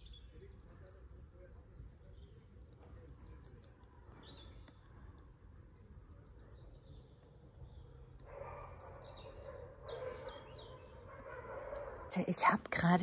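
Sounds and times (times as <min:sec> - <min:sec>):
faint high bird chirps: 0:00.0 - 0:02.6, 0:03.2 - 0:05.1, 0:05.7 - 0:12.9.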